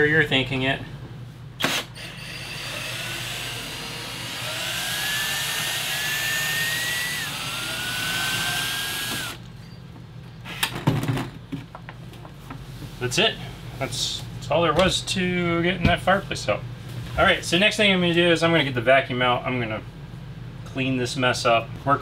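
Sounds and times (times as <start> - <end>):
cordless drill motor whine: 1.6 - 9.4.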